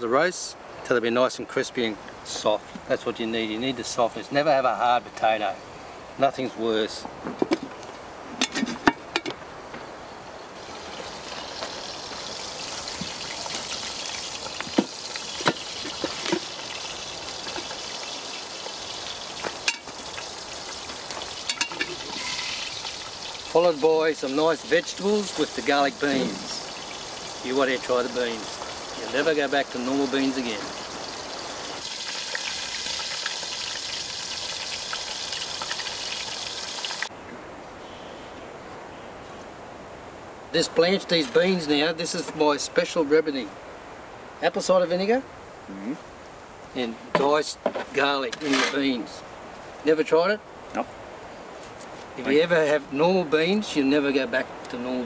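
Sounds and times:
metallic clanks of cast iron pot: 8.4s - 9.4s, 19.6s - 19.9s, 21.4s - 22.6s
campfire coals hissing and crackling: 9.4s - 37.1s, 39.9s - 55.0s.

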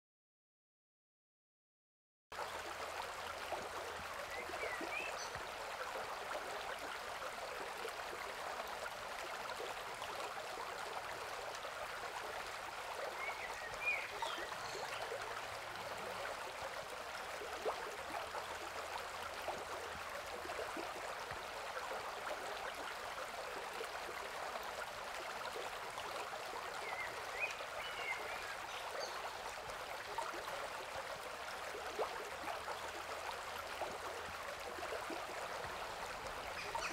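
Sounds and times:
stream babbling over stones: 2.4s - 36.9s.

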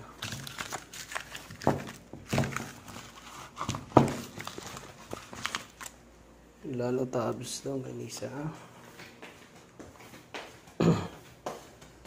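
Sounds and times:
plastic rustling: 0.0s - 6.0s.

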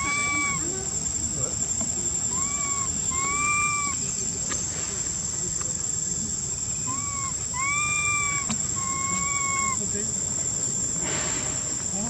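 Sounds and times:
baby monkey coo calls: 0.0s - 1.0s, 2.2s - 4.2s, 6.8s - 10.0s
high-pitched insect drone: 0.0s - 4.4s, 5.8s - 10.6s.

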